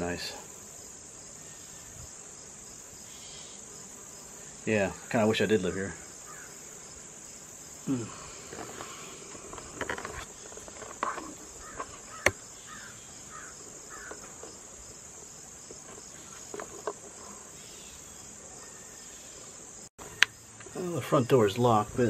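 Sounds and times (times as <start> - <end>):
crickets chirping: 0.0 - 22.0
short creaks and clicks: 8.4 - 12.4.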